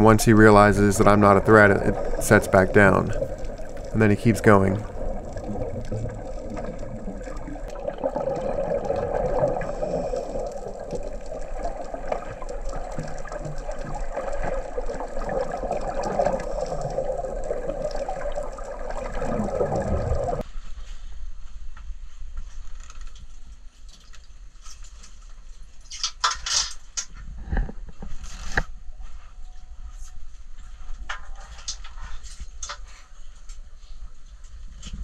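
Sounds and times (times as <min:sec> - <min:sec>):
underwater bubbling and gurgling: 0:00.0 - 0:20.4.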